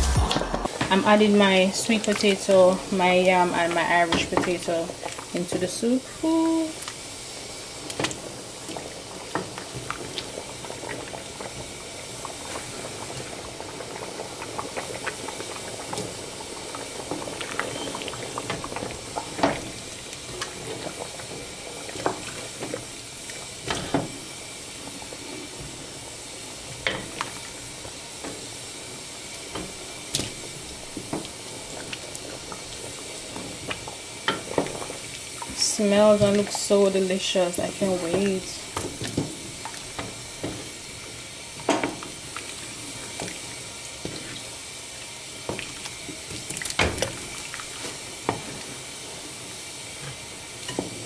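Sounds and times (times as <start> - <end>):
soup bubbling at a boil: 0.6 - 51.0.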